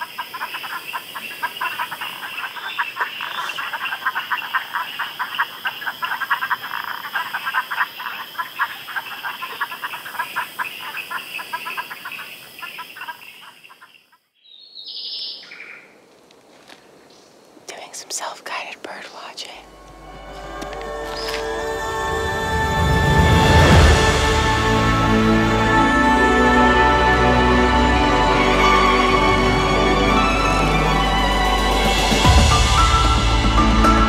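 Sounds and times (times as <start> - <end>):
frogs calling: 0.0 - 16.0, 17.8 - 21.8
high-pitched call: 19.7 - 34.0.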